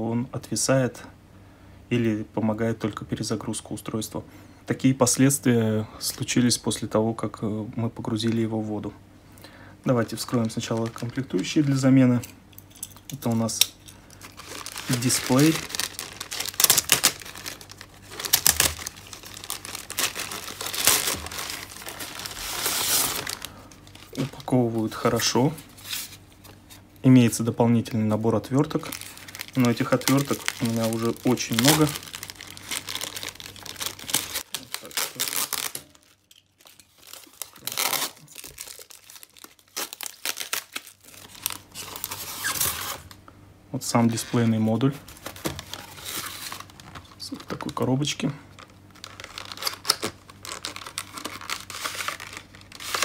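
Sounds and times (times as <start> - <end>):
plastic bag crinkling and ripping: 9.9 - 12.2, 13.2 - 26.6, 28.1 - 43.2, 44.1 - 53.0
tape tearing: 13.4 - 24.4, 28.8 - 43.2, 48.6 - 53.0.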